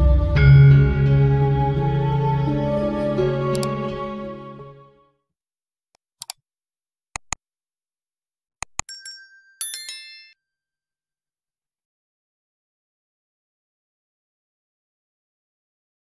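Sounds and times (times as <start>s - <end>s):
background music: 0.0s - 5.2s
mouse clicks: 6.2s - 6.4s, 7.2s - 7.4s, 8.6s - 8.9s
bright notification bell chime: 8.9s - 10.4s.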